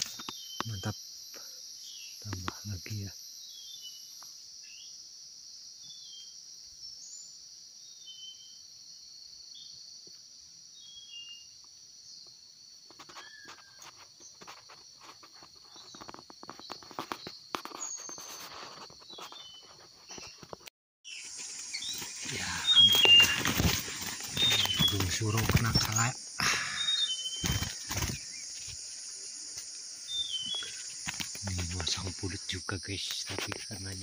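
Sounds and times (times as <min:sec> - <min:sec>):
small bird chirping: 0:00.0 - 0:01.0, 0:12.9 - 0:34.0
high-pitched insect drone: 0:00.0 - 0:34.0
leaves crackling and rustling: 0:21.1 - 0:28.9.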